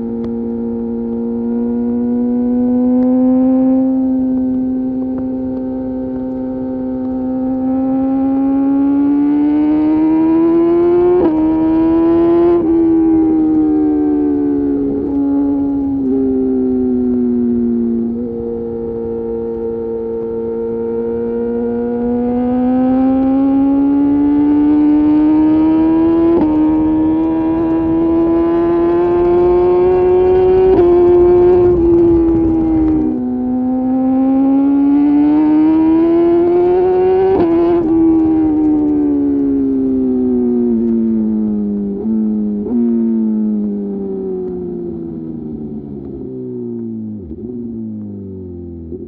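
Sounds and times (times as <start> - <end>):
motorcycle engine revving: 0.0 - 49.0
wind rush: 26.4 - 33.6.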